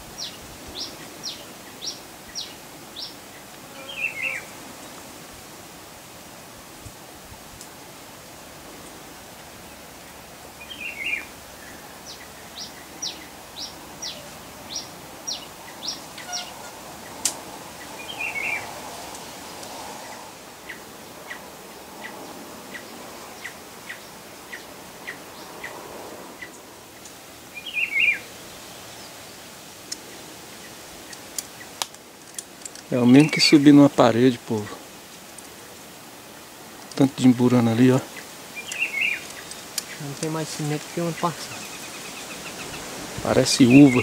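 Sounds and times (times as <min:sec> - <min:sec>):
bird warbled call: 0:03.8 - 0:04.6, 0:10.6 - 0:18.7, 0:27.5 - 0:28.3, 0:43.6 - 0:44.0.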